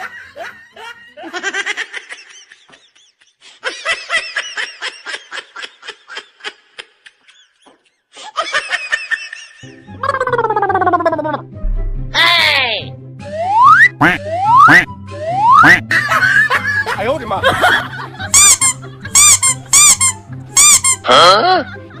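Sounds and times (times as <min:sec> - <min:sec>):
high-pitched laughter: 0:00.0 - 0:11.4, 0:17.5 - 0:22.0
comic music with low beat: 0:09.7 - 0:16.7.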